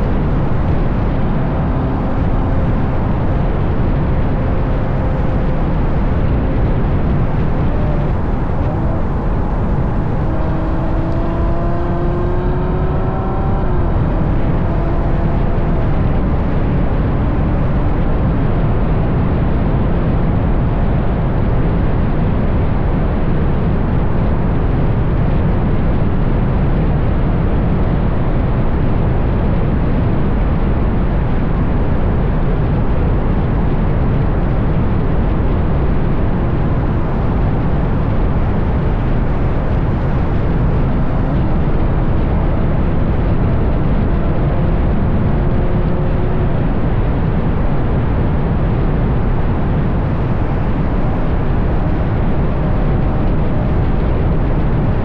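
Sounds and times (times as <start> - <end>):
car engine accelerating: 0.0 - 55.0
wind and road noise: 0.0 - 55.0.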